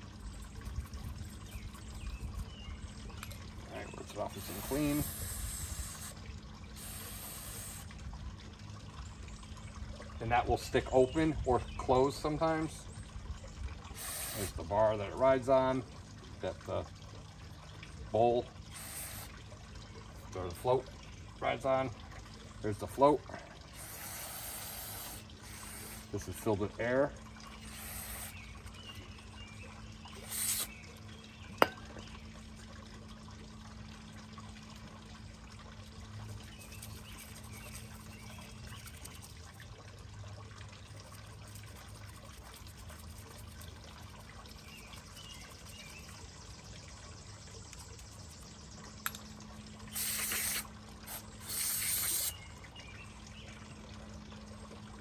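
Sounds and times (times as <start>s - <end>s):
liquid trickling: 0.0s - 55.0s
steady low hum: 0.0s - 55.0s
hissing spray: 4.4s - 6.1s, 6.8s - 7.8s, 14.0s - 14.5s, 18.7s - 19.3s, 23.8s - 26.1s, 27.7s - 28.4s, 30.2s - 30.7s, 49.9s - 52.3s.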